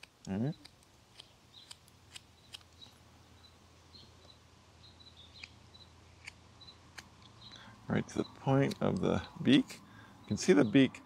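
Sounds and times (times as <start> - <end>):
knife slicing wood clicks: 0.0 - 2.8
faint high chirping: 1.5 - 6.0, 6.6 - 11.0.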